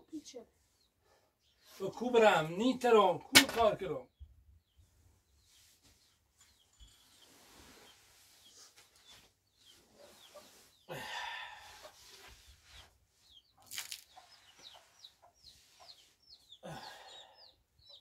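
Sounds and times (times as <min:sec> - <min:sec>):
chickens peeping: 0:07.8 - 0:10.9, 0:11.8 - 0:18.0.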